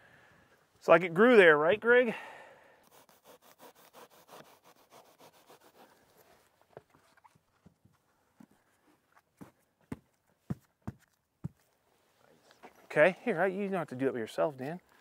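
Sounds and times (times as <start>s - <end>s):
knife sawing through insulation board: 2.8s - 6.0s.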